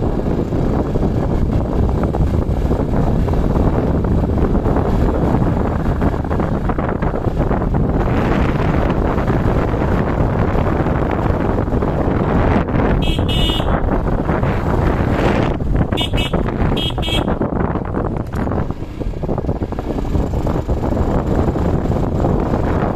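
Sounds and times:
vehicle engine and road noise: 0.0s - 22.9s
wind buffeting microphone: 0.0s - 22.9s
vehicle horn beeps: 13.0s - 13.8s, 15.9s - 17.4s.

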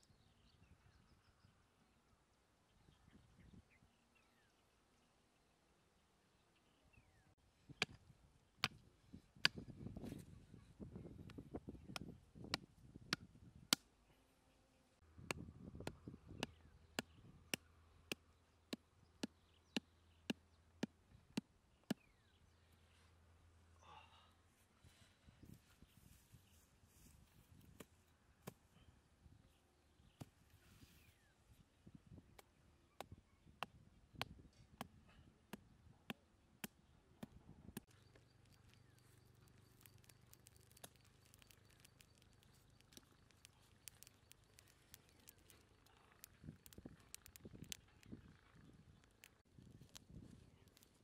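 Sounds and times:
dry twigs fire crackling: 37.8s - 48.3s, 48.9s - 51.0s.

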